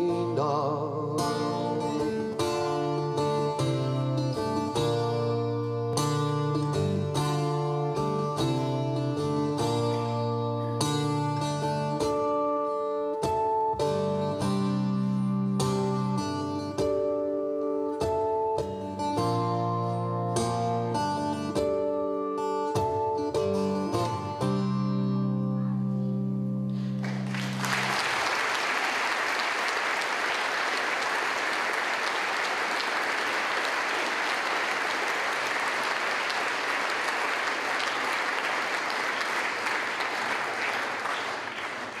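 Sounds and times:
plucked acoustic string instrument: 0.0 - 28.0
audience applauding: 26.8 - 42.0.

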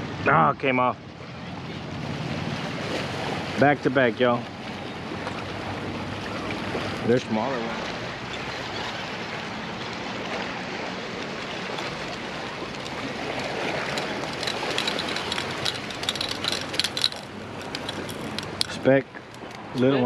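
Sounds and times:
waves washing against boulders: 5.2 - 19.9.

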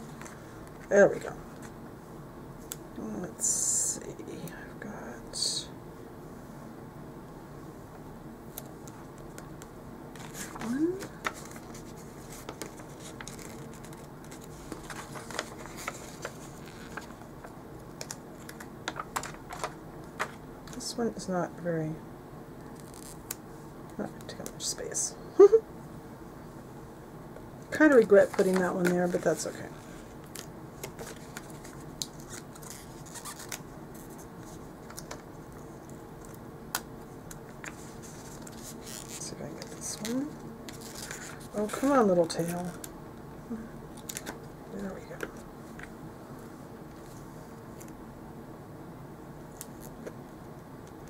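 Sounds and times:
paper sticker sheet crinkling: 10.2 - 20.4, 27.9 - 35.2.

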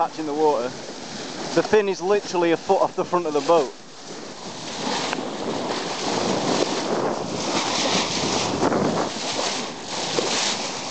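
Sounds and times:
water splashing along boat bow: 0.0 - 10.9
wind buffeting microphone: 0.0 - 10.9.

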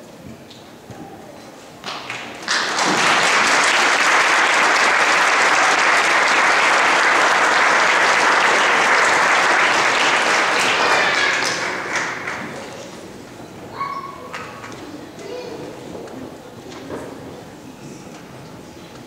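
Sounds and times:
crowd applauding: 1.9 - 13.0.

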